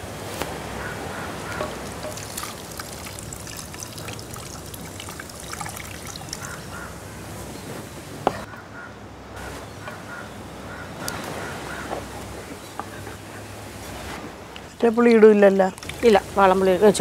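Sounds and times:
liquid trickling into a pot: 1.5 - 6.7.

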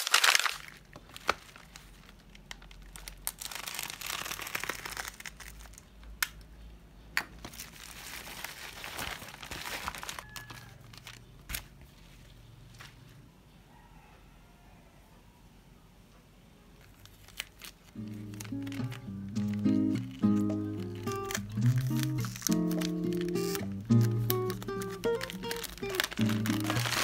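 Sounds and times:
plastic wrapping crinkling: 0.0 - 6.2, 7.3 - 12.4, 16.8 - 27.0.

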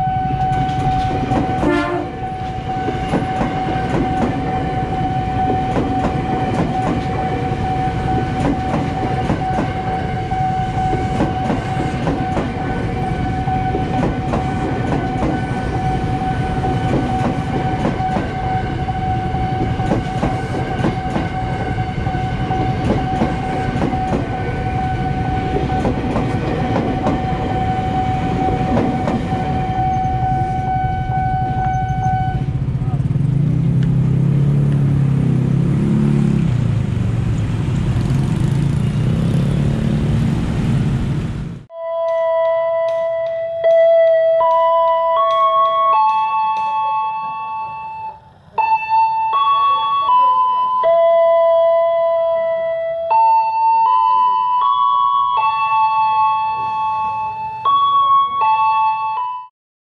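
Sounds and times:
level crossing alarm tone: 0.0 - 32.6, 41.7 - 59.5
train wheels clattering over rails: 0.4 - 4.8, 5.4 - 9.9, 10.7 - 18.5, 19.5 - 21.8, 22.4 - 24.5, 25.4 - 30.0.

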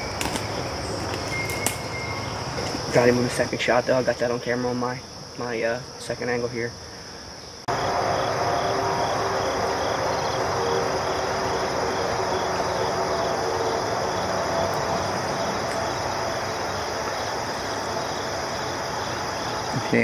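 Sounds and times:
insects chirping: 0.0 - 20.0.

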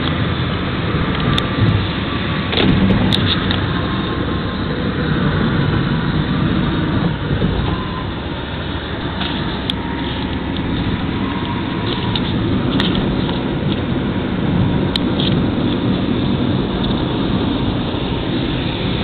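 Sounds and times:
road and engine noise in car cabin: 0.0 - 19.0.

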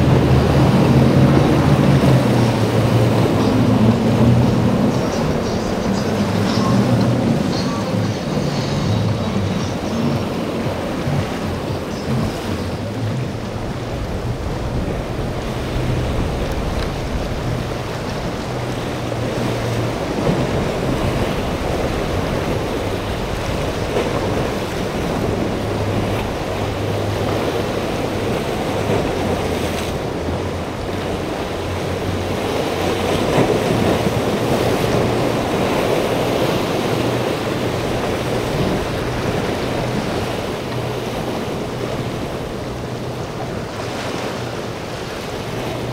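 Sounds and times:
boat motors droning: 0.0 - 45.9
sea water splashing: 0.0 - 45.9
wind buffeting microphone: 0.0 - 45.9.

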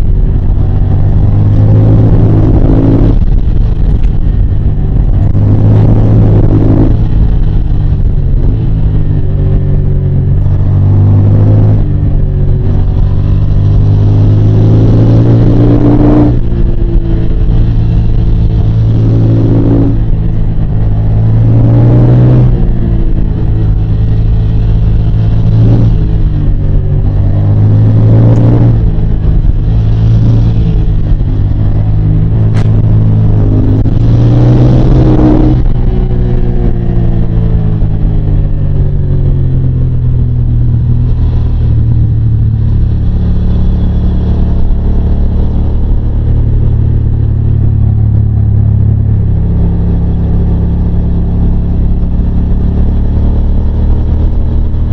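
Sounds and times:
motorcycle engine revving: 0.0 - 54.9.

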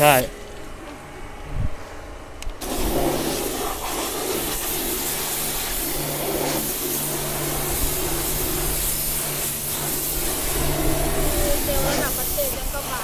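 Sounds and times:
pressure washer spray hissing: 2.6 - 13.0
pump motor hum: 2.6 - 13.0.

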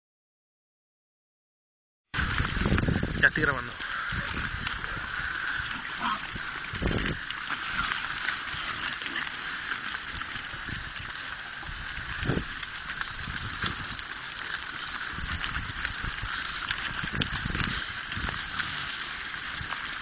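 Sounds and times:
hooves scuffing on dirt: 2.2 - 20.0
wild boar grunting: 3.8 - 7.0.

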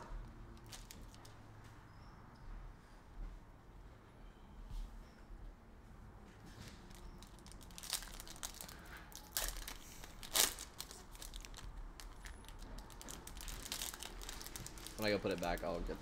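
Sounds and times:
foil wrapper tearing and crinkling: 0.6 - 1.3, 6.8 - 15.9.

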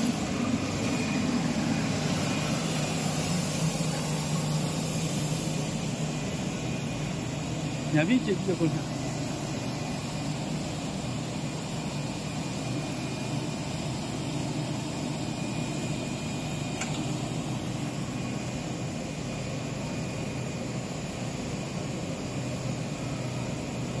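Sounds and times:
machinery humming and whirring: 0.0 - 24.0
brief click: 16.8 - 17.1.

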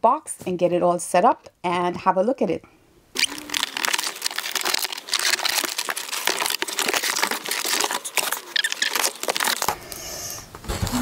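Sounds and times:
packaging crinkling and rustling: 3.2 - 10.0.

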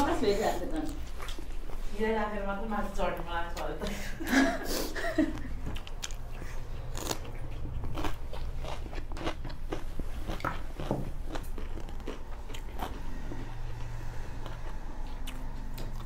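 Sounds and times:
faint low hum: 0.0 - 16.0
chewing and crunching radish: 0.7 - 1.8, 5.4 - 16.0.

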